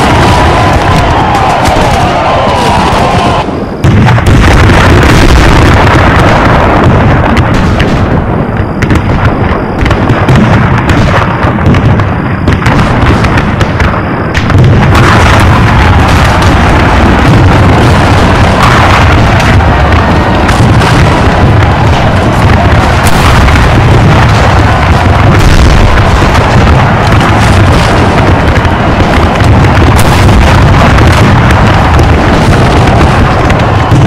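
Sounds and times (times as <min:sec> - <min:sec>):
cannon booms: 0:00.0 - 0:34.0
musket fire: 0:00.0 - 0:34.0.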